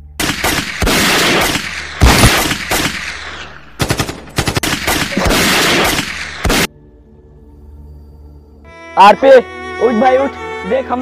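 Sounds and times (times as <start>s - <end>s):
machine-gun fire: 0.2s - 6.7s
single gunshots: 0.2s - 6.7s.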